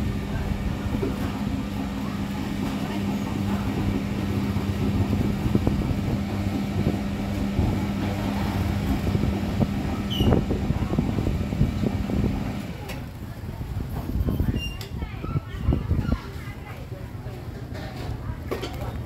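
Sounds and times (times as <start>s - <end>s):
market clatter and knocks: 17.6s - 19.0s.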